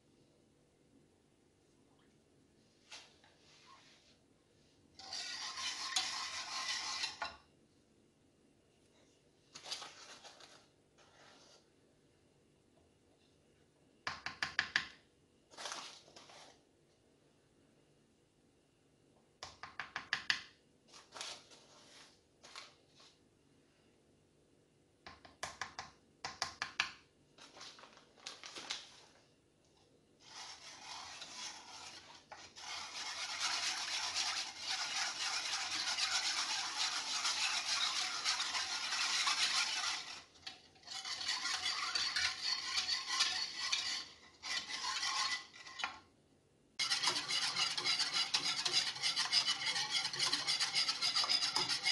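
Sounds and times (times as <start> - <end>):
whisk scraping in a saucepan: 5.0 - 7.5, 30.2 - 46.0, 46.8 - 51.9.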